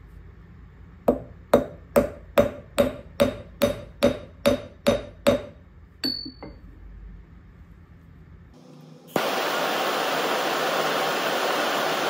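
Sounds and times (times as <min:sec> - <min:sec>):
hammer striking metal on anvil: 0:01.1 - 0:06.6.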